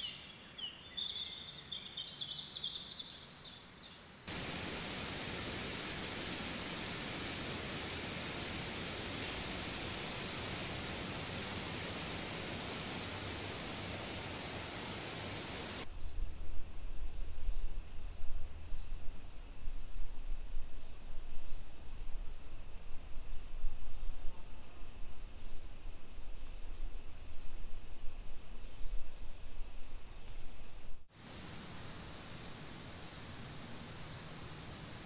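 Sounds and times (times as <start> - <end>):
insect high trill: 4.3 - 16.4
insect pulsing lower chirp: 4.3 - 31.1
steady hiss: 4.3 - 35.0.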